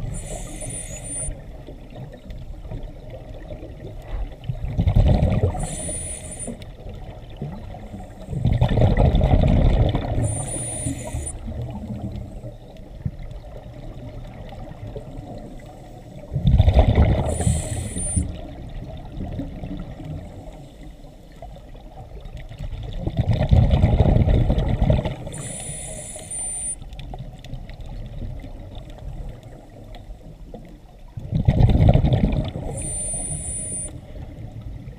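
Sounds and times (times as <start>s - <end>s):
regulator high hiss: 0.0s - 1.4s, 5.6s - 6.6s, 10.2s - 11.4s, 17.3s - 18.4s, 25.3s - 26.8s, 32.7s - 34.0s
underwater wash of water: 0.0s - 34.9s.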